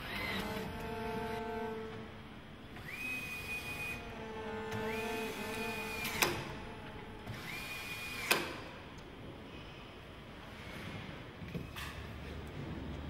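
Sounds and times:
cordless screwdriver motor whining: 0.0s - 1.6s, 2.8s - 4.1s, 4.7s - 6.6s.

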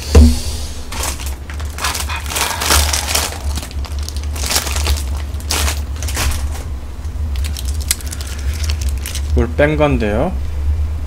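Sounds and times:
low hum: 0.0s - 9.4s
foil packets crinkling: 0.8s - 9.6s.

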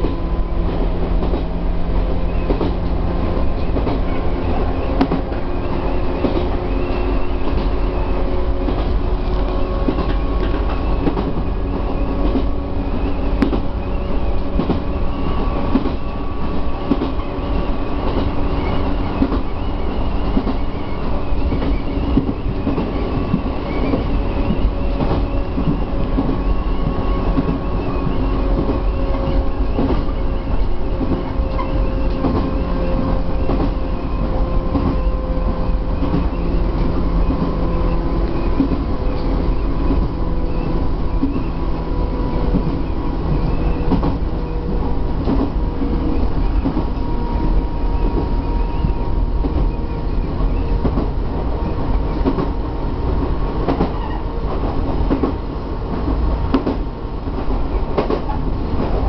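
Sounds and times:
electric train rumble and whine: 0.0s - 59.0s.

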